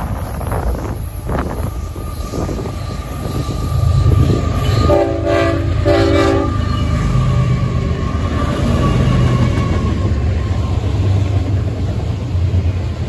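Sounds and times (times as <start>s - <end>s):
train running noise: 0.0s - 13.0s
locomotive horn blasts: 3.9s - 6.8s.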